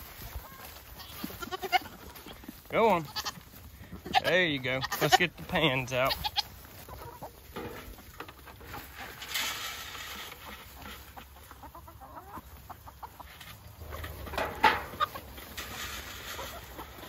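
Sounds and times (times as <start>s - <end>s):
chickens clucking: 0.0s - 17.0s
goats bleating: 0.4s - 7.3s.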